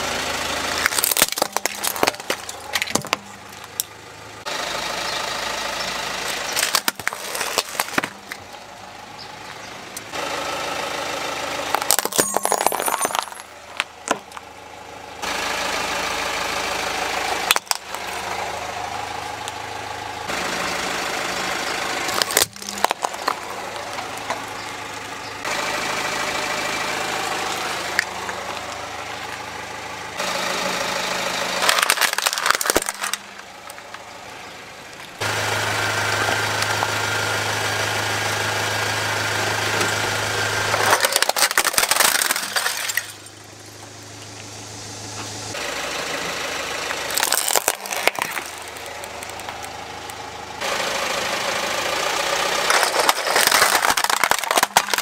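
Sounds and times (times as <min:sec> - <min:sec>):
car engine running: 0:00.0 - 0:55.0
plastic cracking and snapping: 0:00.8 - 0:03.9, 0:06.5 - 0:08.4, 0:22.1 - 0:23.4, 0:31.6 - 0:33.8, 0:40.8 - 0:43.1, 0:47.1 - 0:49.7, 0:52.7 - 0:55.0.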